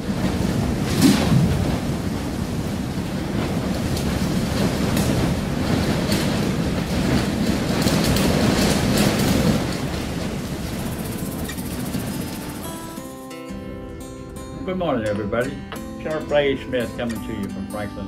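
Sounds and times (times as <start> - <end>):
rushing wind-like storm noise: 0.0 - 13.4.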